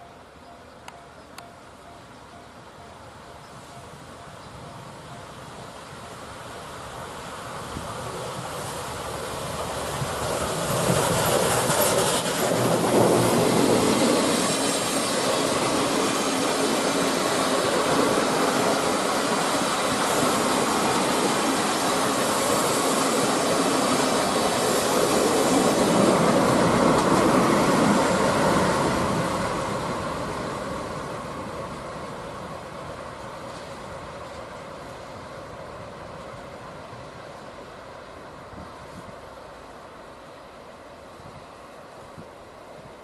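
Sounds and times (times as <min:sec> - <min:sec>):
train rolling past: 0:00.0 - 0:43.0.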